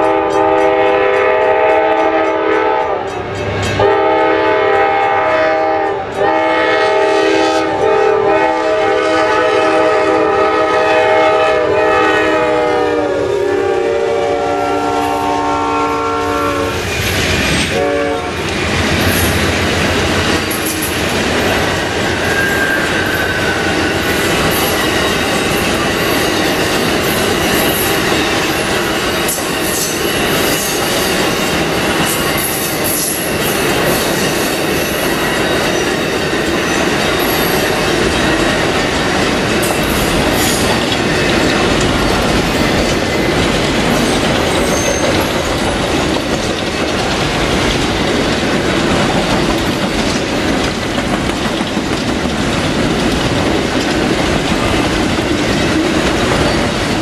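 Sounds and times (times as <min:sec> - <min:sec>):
locomotive horn blasts: 0:00.0 - 0:03.1, 0:03.8 - 0:16.8, 0:17.7 - 0:18.4
train wheels clattering over joints: 0:18.4 - 0:57.0.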